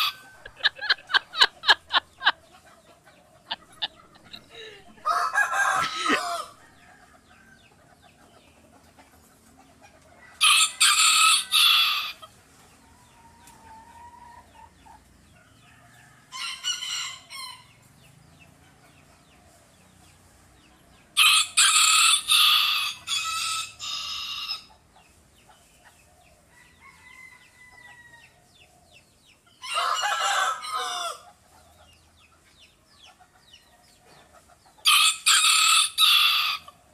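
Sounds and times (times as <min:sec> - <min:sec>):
rooster crowing: 0:00.0 - 0:02.3, 0:03.5 - 0:07.6, 0:10.4 - 0:12.2, 0:21.2 - 0:24.7, 0:26.5 - 0:28.4, 0:29.6 - 0:31.2, 0:34.8 - 0:36.8.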